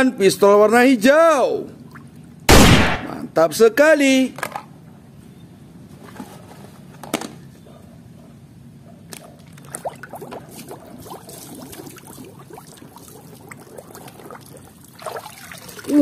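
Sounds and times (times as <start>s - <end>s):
water sloshing in a plastic tub: 9.2s - 16.0s
small splashes: 9.4s - 16.0s.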